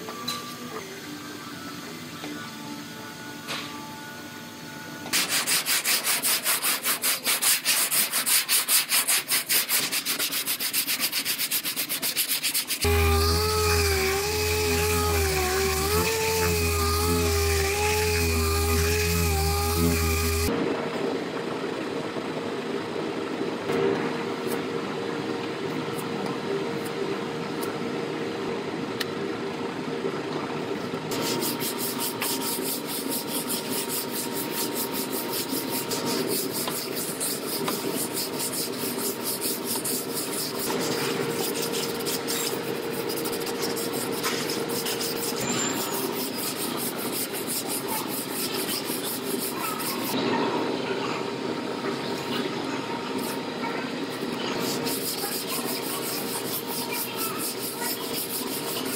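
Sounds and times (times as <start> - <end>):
sanding block rasping: 5.1 - 20.5, 31.1 - 50.2, 54.6 - 58.9.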